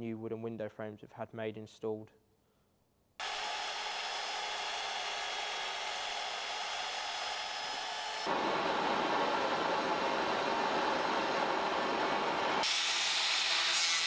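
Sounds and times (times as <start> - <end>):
power drill whirring: 3.2 - 11.6
gas torch flame hissing: 3.2 - 14.0.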